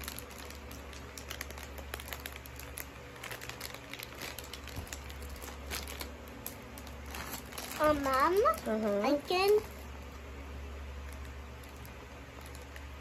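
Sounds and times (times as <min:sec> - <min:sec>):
plastic wrapping crinkling: 0:00.0 - 0:13.0.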